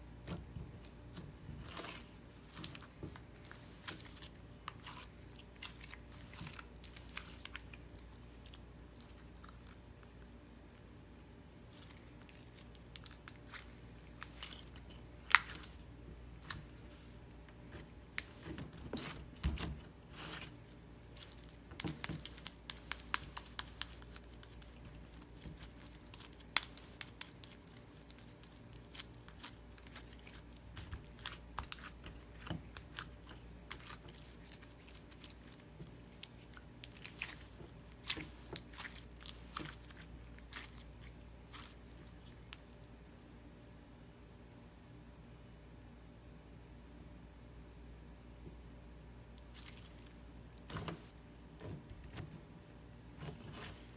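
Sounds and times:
slime squelching and popping: 11.7s - 16.8s, 17.5s - 42.6s.

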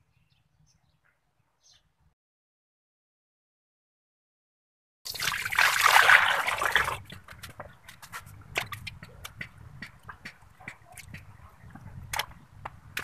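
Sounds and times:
water boiling and bubbling: 5.1s - 7.4s
pops and splashes in boiling water: 8.5s - 11.3s.

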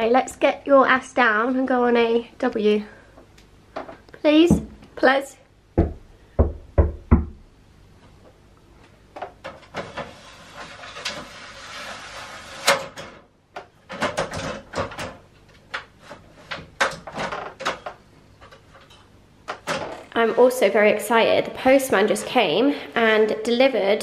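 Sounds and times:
ladder sliding scrape: 9.5s - 13.2s.

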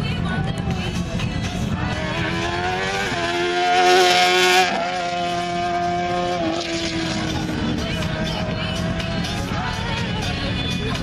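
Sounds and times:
race car engine accelerating: 0.6s - 10.2s.

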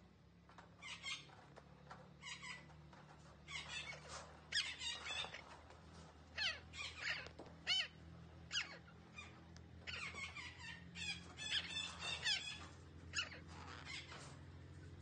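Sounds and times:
parakeet squawking: 2.2s - 2.6s, 3.5s - 5.5s, 6.3s - 14.2s.

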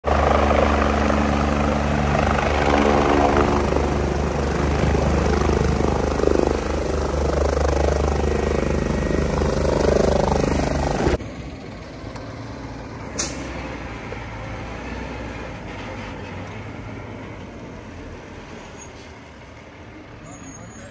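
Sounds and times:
helicopter rotor chopping: 0.0s - 13.2s
short sharp squeak: 20.2s - 20.9s.

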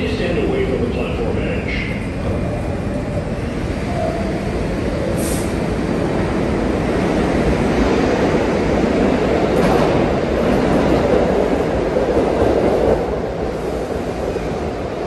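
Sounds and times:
subway train wheels rumbling on rails: 0.0s - 15.0s
hiss of air: 5.1s - 5.6s.

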